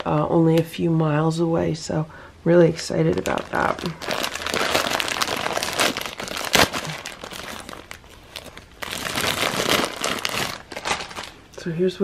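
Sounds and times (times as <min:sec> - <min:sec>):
plastic bag crinkling: 0:02.7 - 0:11.5.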